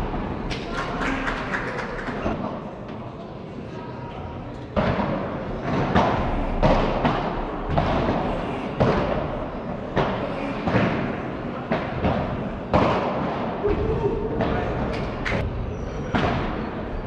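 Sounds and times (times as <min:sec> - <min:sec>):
ball hit by rackets: 0:04.8 - 0:14.8.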